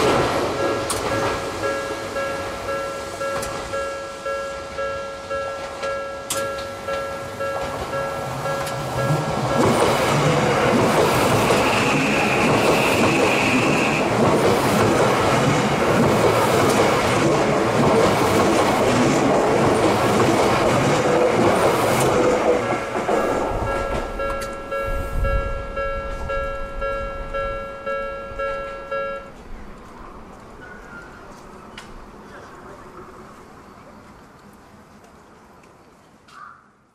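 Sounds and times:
level crossing bell ringing: 0.0 - 10.0, 23.6 - 29.4
electric train passing: 0.0 - 35.6.

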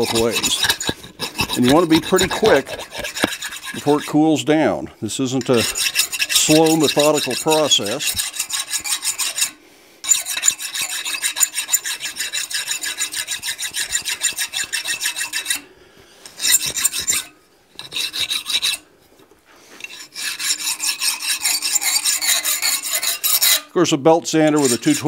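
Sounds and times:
file rasping on steel rod: 0.0 - 4.2, 5.4 - 15.7, 16.4 - 18.8, 19.8 - 23.7, 24.5 - 25.0.

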